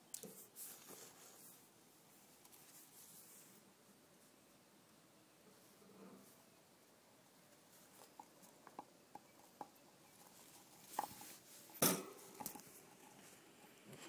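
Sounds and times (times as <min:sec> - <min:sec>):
knocks and rustles in cage: 0:09.5 - 0:13.2.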